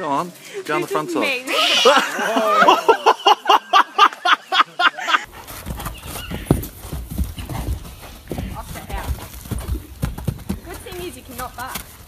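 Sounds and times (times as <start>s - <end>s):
hoof thuds on sand: 5.3s - 12.0s.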